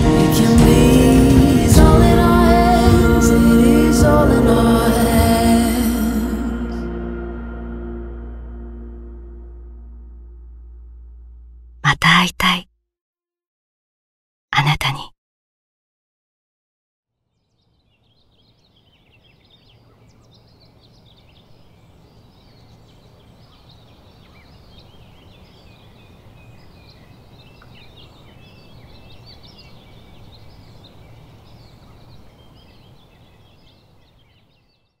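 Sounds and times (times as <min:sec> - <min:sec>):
low background rumble: 0:00.4 - 0:11.8
small birds chirping: 0:17.3 - 0:35.0.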